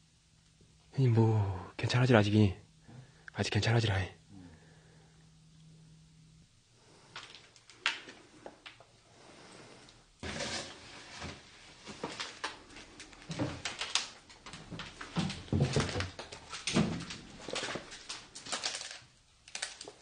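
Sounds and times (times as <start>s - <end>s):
scrapes and rustles: 9.2s - 19.0s
footsteps crunching on debris: 11.8s - 18.6s.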